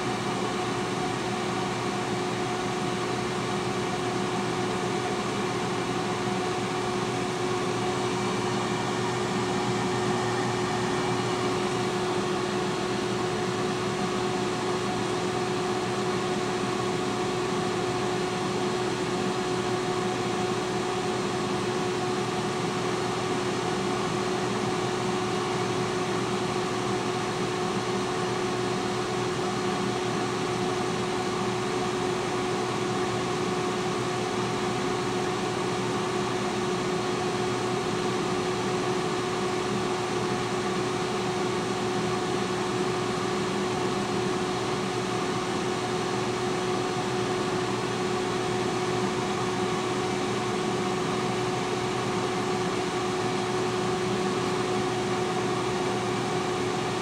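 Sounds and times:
air fryer fan whirring: 0.0 - 57.0.

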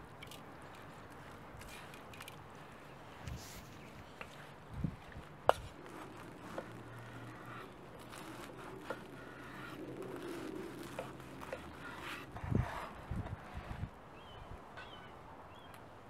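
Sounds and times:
knife sawing crusty bread: 5.9 - 13.7.

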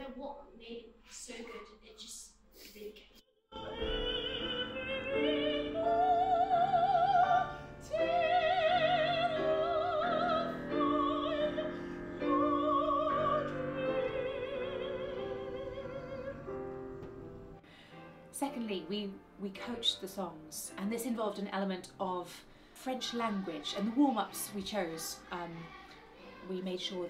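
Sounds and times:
operatic soprano singing: 3.5 - 16.7, 22.8 - 27.0
piano accompaniment: 3.5 - 27.0.

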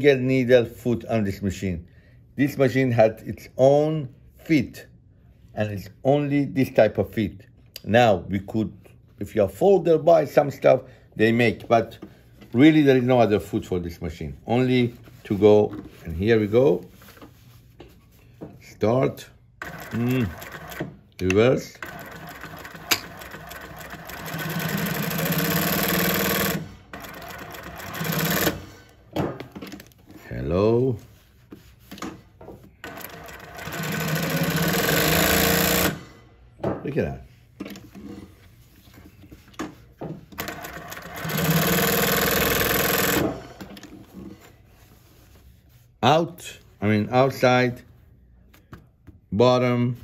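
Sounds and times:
industrial sewing machine stitching: 19.6 - 21.0, 21.7 - 28.8, 32.8 - 36.1, 40.4 - 43.7.

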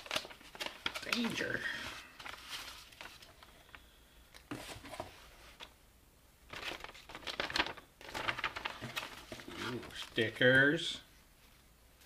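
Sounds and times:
paper rustling and crinkling: 0.0 - 3.8, 4.5 - 5.7, 6.5 - 10.6.

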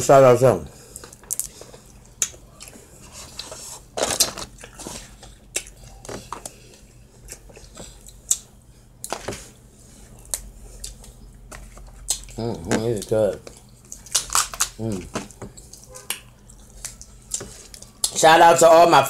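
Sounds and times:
chewing and mouth noises: 0.9 - 18.2.

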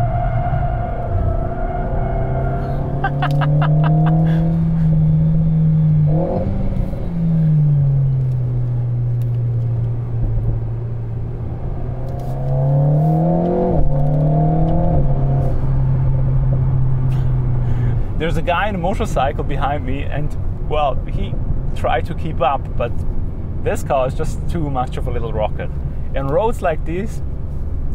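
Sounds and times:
car engine while driving: 0.0 - 27.9
engine gear change: 11.9 - 15.6.

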